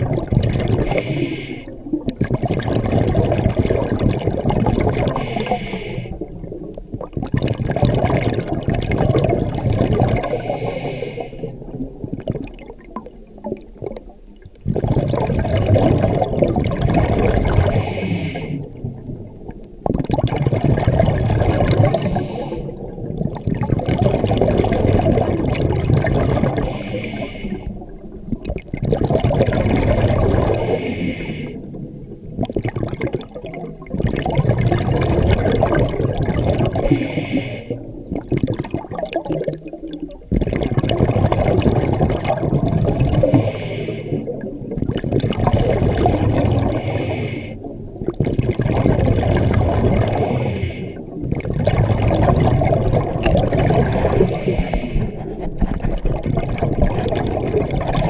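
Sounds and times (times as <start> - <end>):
exhaled bubbles gurgling: 0.0 - 58.0
regulator inhale hiss: 0.8 - 1.9, 5.2 - 6.2, 10.2 - 11.6, 17.7 - 18.8, 21.8 - 22.9, 26.6 - 27.8, 30.5 - 31.8, 36.8 - 37.9, 43.2 - 44.4, 46.7 - 47.7, 50.1 - 51.1, 54.2 - 55.4.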